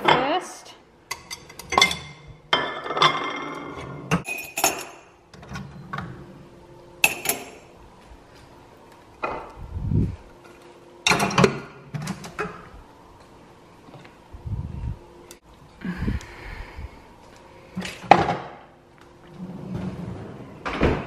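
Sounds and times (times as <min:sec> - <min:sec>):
mugs and dishes clinking: 0:01.1 - 0:05.1, 0:07.0 - 0:07.7.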